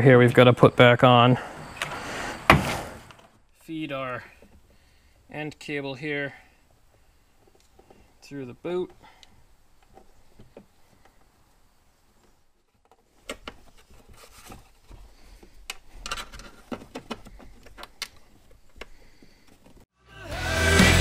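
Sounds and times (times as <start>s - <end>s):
faint rustling: 6.3s - 19.9s
loud background music: 20.1s - 21.0s.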